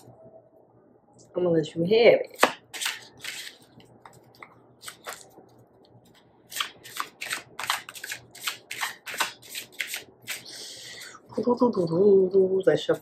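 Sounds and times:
cards being shuffled: 2.4 - 10.5.

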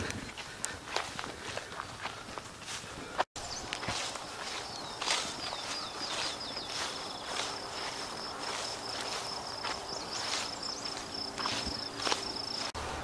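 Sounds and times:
footsteps swishing through grass: 0.0 - 13.0
high-pitched insect trill: 3.4 - 12.8.

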